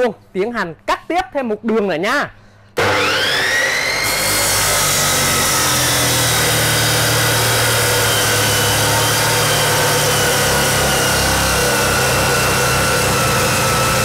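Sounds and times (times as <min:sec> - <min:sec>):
cut-off saw motor whine: 0:02.8 - 0:14.0
disc grinding through steel: 0:02.9 - 0:14.0.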